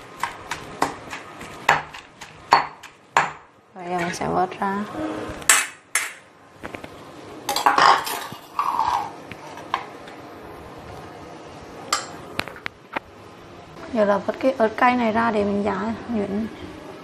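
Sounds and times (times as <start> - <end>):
utensils clinking on stone mortar: 7.5 - 9.1.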